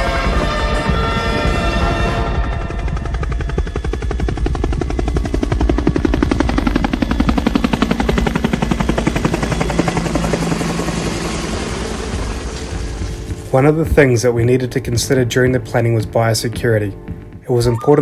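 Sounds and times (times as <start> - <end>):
low engine drone: 0.0 - 13.8
helicopter rotor chopping: 0.0 - 16.2.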